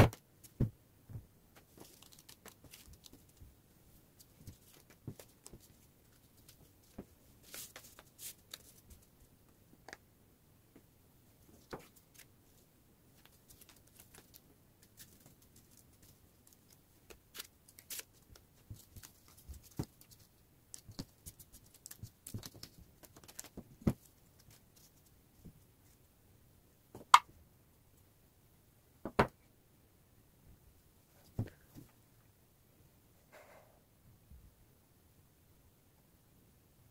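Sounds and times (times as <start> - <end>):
paper rustling: 1.6 - 3.5, 4.2 - 9.1, 13.2 - 25.1.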